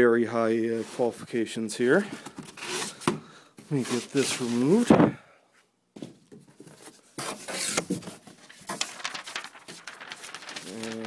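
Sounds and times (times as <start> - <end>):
cardboard and paper rustling: 2.1 - 4.9, 6.3 - 11.0.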